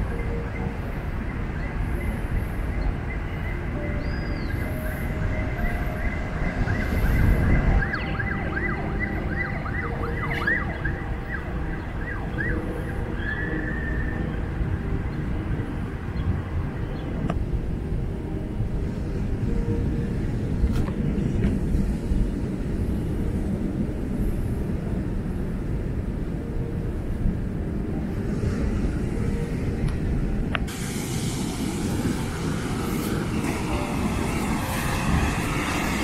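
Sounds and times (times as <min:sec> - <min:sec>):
distant siren yelping: 0:00.0 - 0:17.2.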